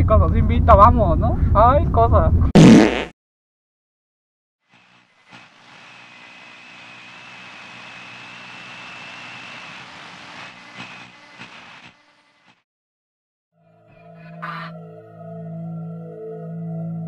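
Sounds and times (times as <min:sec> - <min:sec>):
rushing noise with high whine: 0:09.5 - 0:12.0.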